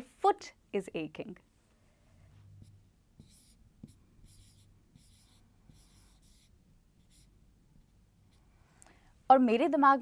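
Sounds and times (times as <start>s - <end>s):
marker writing on whiteboard: 2.5s - 8.4s.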